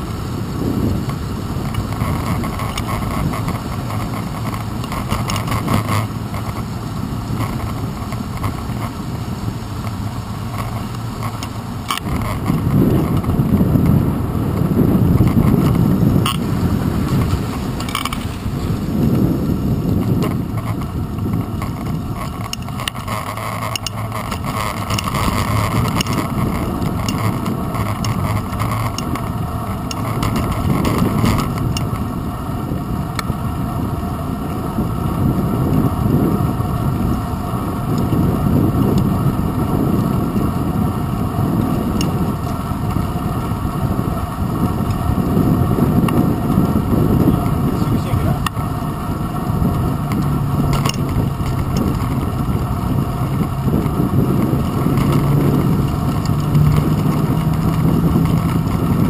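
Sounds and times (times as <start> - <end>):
bicycle tyre rumble: 0.0 - 59.0
wind: 0.0 - 59.0.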